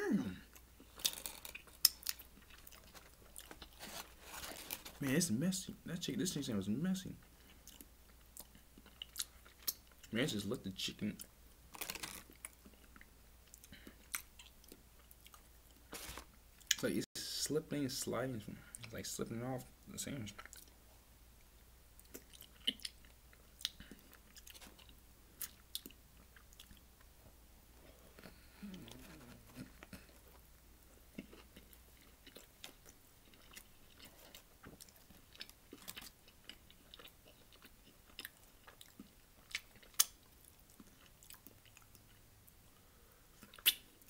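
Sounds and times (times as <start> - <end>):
person chewing food: 0.4 - 5.0, 7.3 - 10.1, 11.2 - 16.8, 22.0 - 27.1, 27.8 - 44.0
wet mouth clicks and smacks: 43.5 - 43.9.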